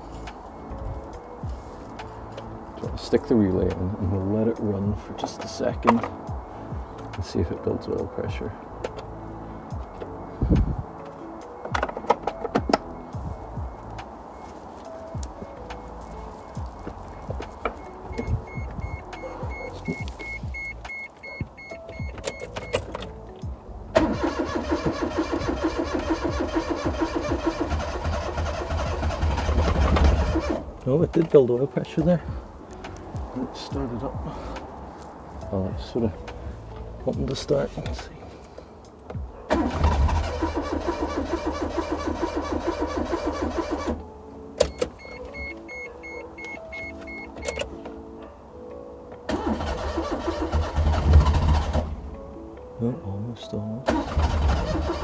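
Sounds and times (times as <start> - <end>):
car warning chime beeping: 12.4 - 23.2, 44.6 - 47.8
engine cranking on starter: 23.9 - 30.7, 39.5 - 44.0, 49.3 - 52.0, 53.9 - 55.0.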